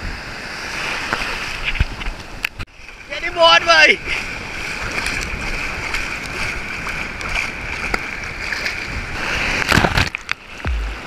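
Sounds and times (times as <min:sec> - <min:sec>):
surf rushing and splashing: 0:00.0 - 0:11.0.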